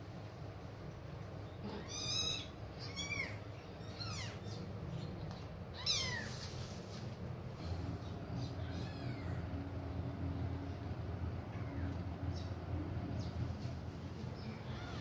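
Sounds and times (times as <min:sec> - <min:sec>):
low steady hum: 0:00.0 - 0:15.0
kitten mewing: 0:01.6 - 0:04.5.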